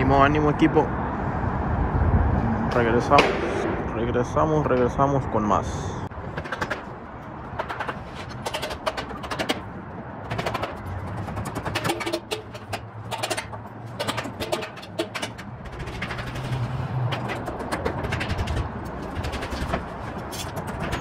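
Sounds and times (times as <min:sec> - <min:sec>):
sharp taps and clanks: 0:06.3 - 0:06.9, 0:07.5 - 0:21.0.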